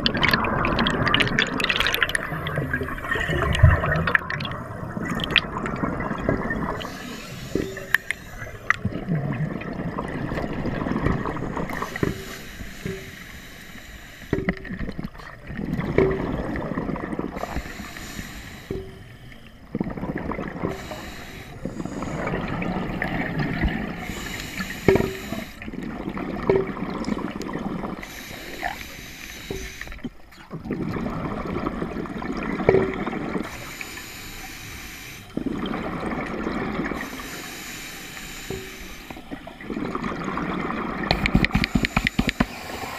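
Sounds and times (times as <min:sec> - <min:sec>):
exhaled bubbles gurgling: 0:00.0 - 0:13.4, 0:14.3 - 0:42.9
regulator inhalation hiss: 0:06.8 - 0:08.7, 0:11.6 - 0:14.5, 0:17.4 - 0:19.3, 0:20.7 - 0:22.3, 0:24.0 - 0:25.6, 0:28.0 - 0:30.0, 0:33.5 - 0:35.4, 0:37.0 - 0:39.4, 0:41.6 - 0:42.9.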